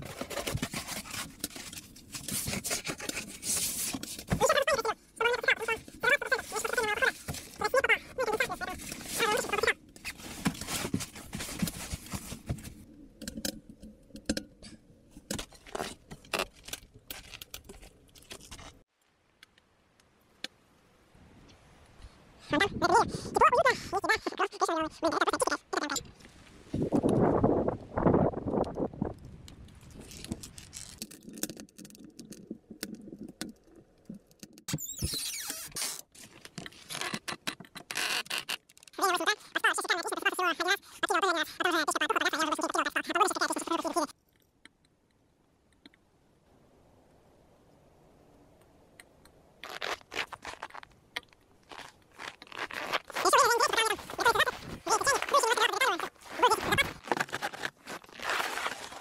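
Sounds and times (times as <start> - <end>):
crunching and scraping in snow: 0.0 - 4.8, 5.4 - 12.8, 49.6 - 51.0, 51.6 - 59.0
short creak: 34.7 - 39.0, 49.6 - 59.0.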